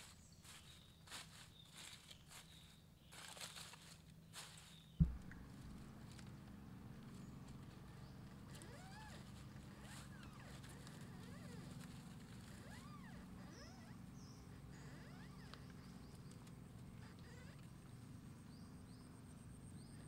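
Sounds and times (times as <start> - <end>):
low hum: 5.0 - 20.0
puppy whimpering: 8.6 - 11.8, 12.4 - 15.7, 17.0 - 17.7.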